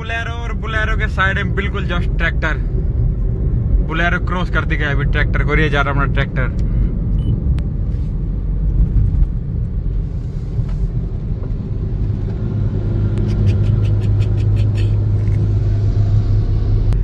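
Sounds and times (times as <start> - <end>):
road rumble of vehicles: 0.0 - 17.0
deep tractor engine hum: 6.5 - 17.0.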